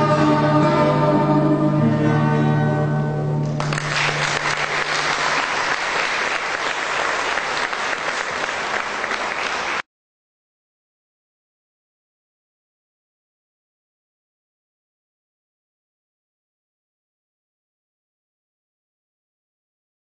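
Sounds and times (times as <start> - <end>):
choir singing with guitar: 0.0 - 3.4
audience applause: 3.6 - 9.8.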